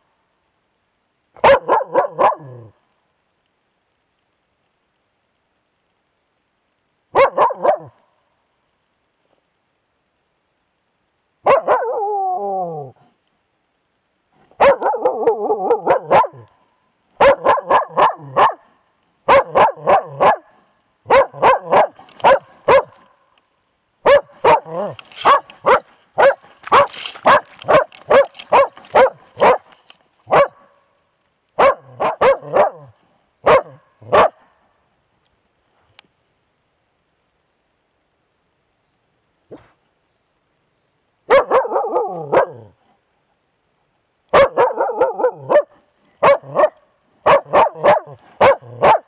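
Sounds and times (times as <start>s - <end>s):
dog barking sharply: 1.4s - 2.6s, 7.2s - 7.9s, 11.4s - 12.0s, 14.6s - 16.4s, 17.2s - 18.6s, 19.3s - 20.4s, 21.1s - 23.0s, 24.0s - 29.7s, 30.3s - 30.6s, 31.6s - 34.4s, 41.3s - 42.7s, 44.3s - 49.0s
dog yelping calls: 1.4s - 2.7s, 7.2s - 7.9s, 11.4s - 12.9s, 14.6s - 16.5s, 17.2s - 18.7s, 19.3s - 20.4s, 21.1s - 23.0s, 24.0s - 29.7s, 30.3s - 30.6s, 31.6s - 32.9s, 41.3s - 42.7s, 44.4s - 49.0s.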